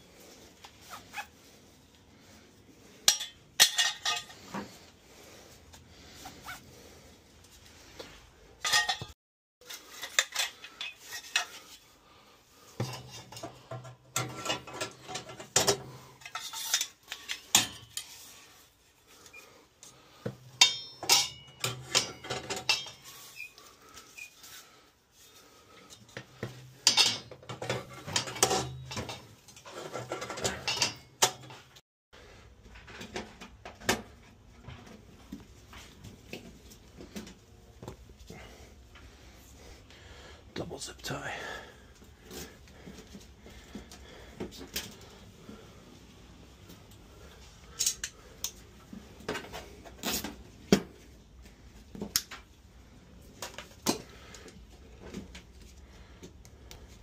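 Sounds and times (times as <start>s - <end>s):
metal burners clinking and scraping: 2.8s - 5.0s, 8.5s - 12.0s, 12.6s - 24.3s, 25.8s - 31.8s
tools picked up and put down: 8.6s - 9.1s.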